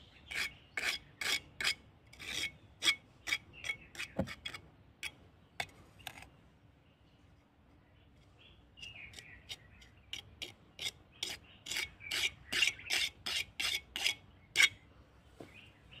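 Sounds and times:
bird chirping: 0.0 - 1.3, 2.5 - 4.5, 5.4 - 13.2, 14.2 - 16.0
rasping scrapes: 0.3 - 4.6, 10.2 - 14.7.

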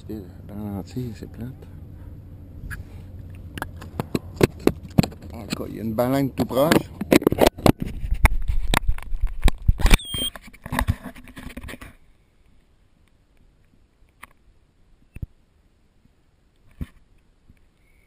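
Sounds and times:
short high squeak: 9.8 - 10.5.

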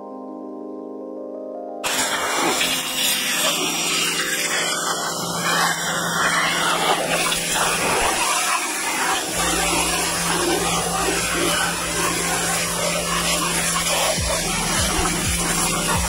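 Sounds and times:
machine rushing noise: 1.8 - 16.0
low hum: 9.3 - 16.0.

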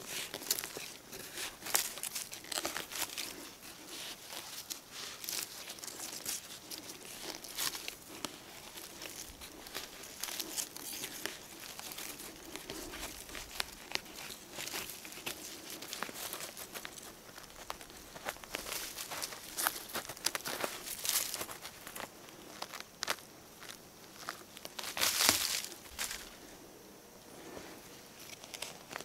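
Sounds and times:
metal tool scraping in dry soil: 0.0 - 21.9.

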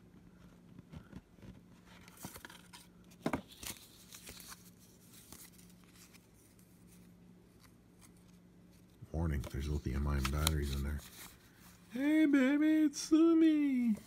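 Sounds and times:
faint low hum: 0.0 - 14.0
paper rustling and sliding: 1.7 - 11.9.

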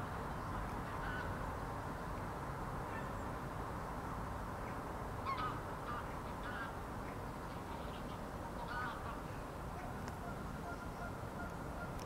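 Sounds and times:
waterbird calls: 7.5 - 12.0.

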